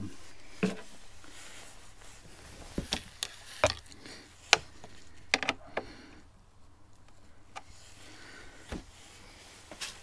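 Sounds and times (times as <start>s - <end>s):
hand tools clicking and knocking: 2.9s - 6.0s.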